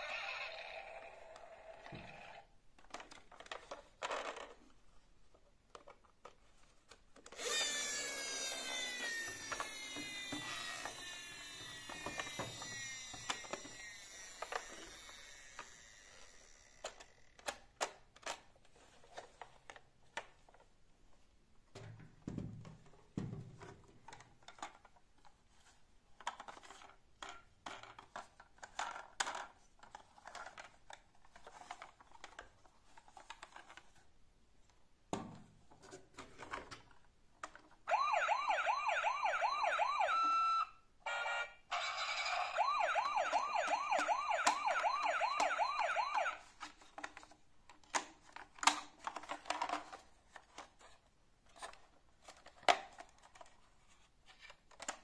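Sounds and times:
plastic toys clicking and knocking: 0:00.0 - 0:04.8, 0:05.6 - 0:20.7, 0:21.7 - 0:34.0, 0:41.8 - 0:55.0
toy siren wailing: 0:07.4 - 0:16.2, 0:37.9 - 0:46.4.

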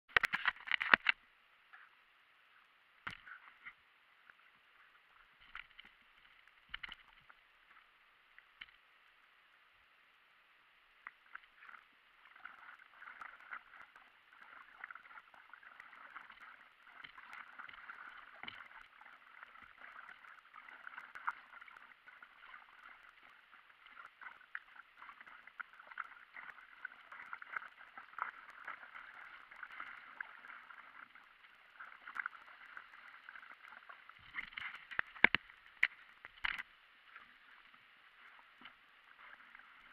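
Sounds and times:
water splashing: 0:05.1 - 0:08.8, 0:11.1 - 0:39.9
paddle strokes: 0:11.1 - 0:39.9.

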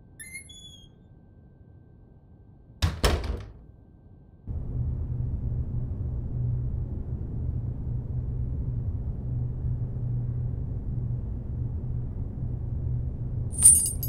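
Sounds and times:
steady low hum: 0:03.8 - 0:14.0.

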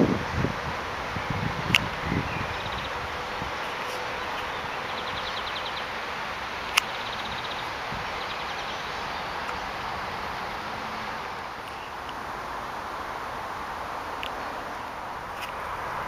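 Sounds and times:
steady background hiss: 0:00.0 - 0:16.0
bird ticking trill: 0:01.2 - 0:12.2.

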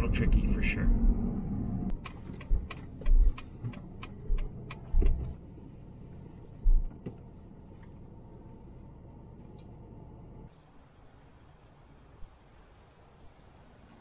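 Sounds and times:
car low rumble: 0:00.0 - 0:14.0
turn signal ticking: 0:01.9 - 0:05.4, 0:06.6 - 0:08.0
heavy thumps over bumps: 0:06.6 - 0:07.2.

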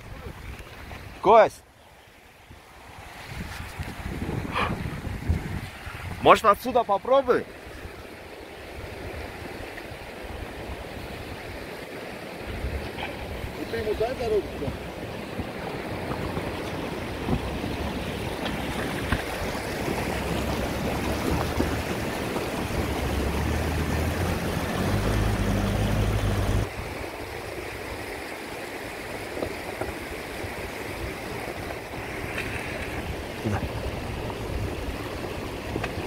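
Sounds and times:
car engine at low speed: 0:12.7 - 0:26.7, 0:31.4 - 0:36.0.

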